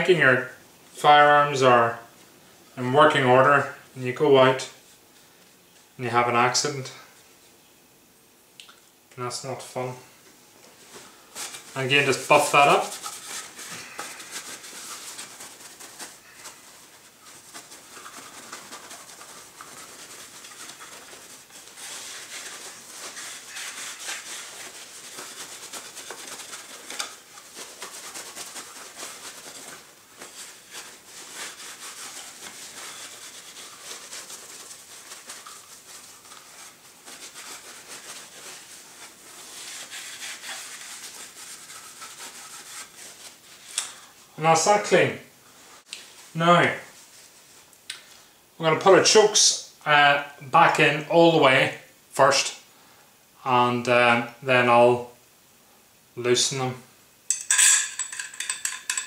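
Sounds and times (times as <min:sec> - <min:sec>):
cloth rubbing wood: 0:10.6 - 0:44.1.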